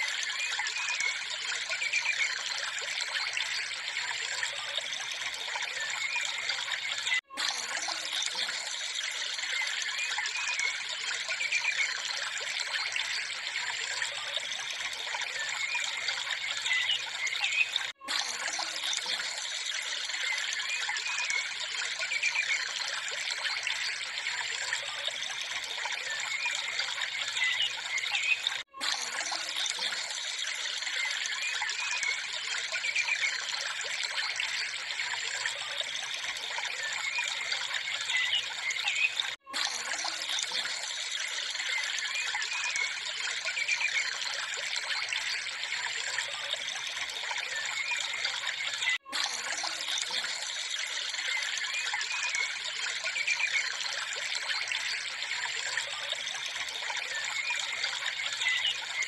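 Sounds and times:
water trickling: 0.0s - 59.0s.

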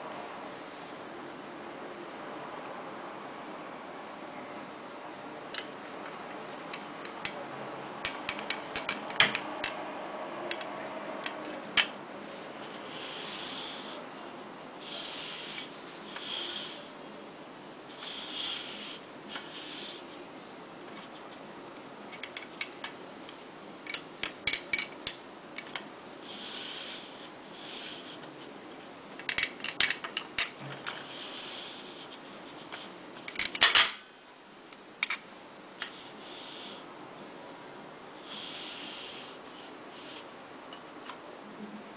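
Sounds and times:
plastic toy parts clicking: 8.0s - 9.8s, 23.8s - 25.9s, 29.2s - 30.6s.

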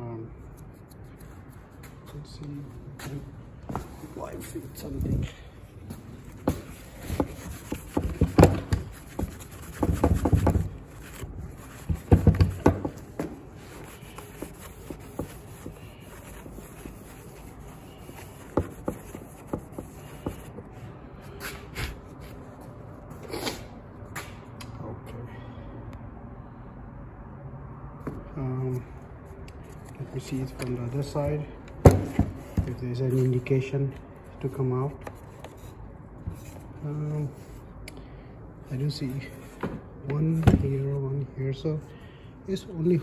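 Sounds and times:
handling noise: 5.8s - 20.7s.

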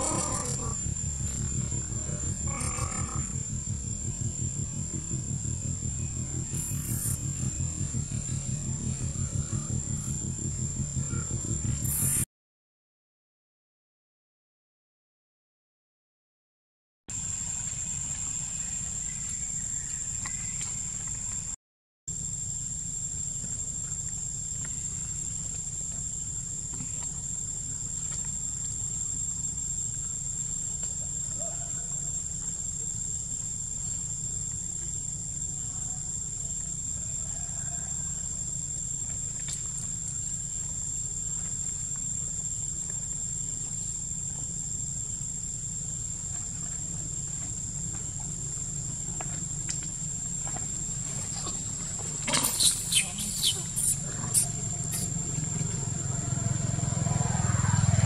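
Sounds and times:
high-pitched whine: 0.0s - 12.3s
insects droning: 0.0s - 12.3s, 17.1s - 58.0s
low steady rumble: 0.0s - 12.3s, 17.1s - 58.0s.

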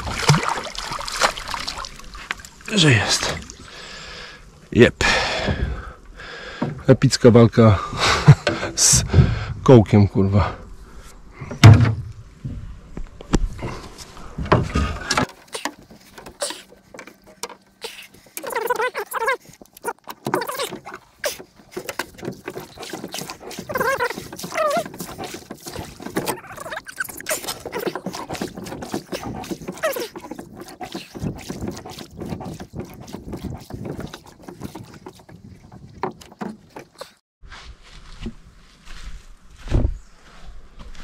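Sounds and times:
oar splashing in water: 0.0s - 3.9s, 14.4s - 37.2s
oar knocking against hull: 14.4s - 26.6s, 27.3s - 37.2s.

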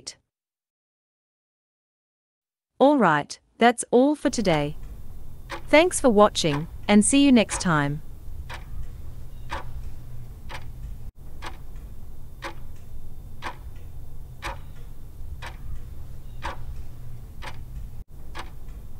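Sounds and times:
clock ticking: 4.3s - 18.9s
steady low hum: 4.3s - 18.9s.

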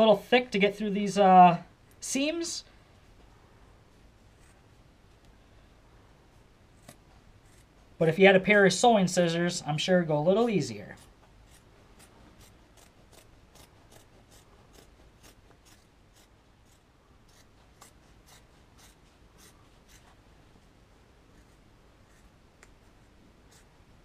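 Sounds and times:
scissors snipping fabric: 6.8s - 7.7s, 11.0s - 20.1s.

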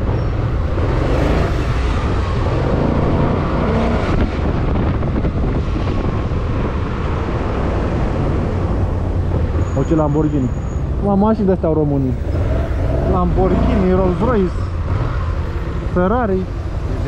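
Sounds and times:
wind rush on microphone: 0.0s - 9.7s.

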